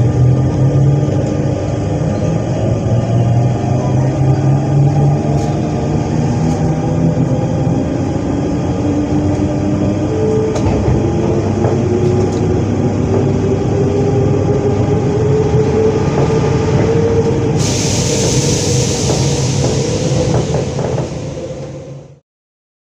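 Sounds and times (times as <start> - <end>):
electric train traction whine: 0.0 - 22.2
train running rumble: 0.0 - 22.2
hiss: 17.6 - 21.7.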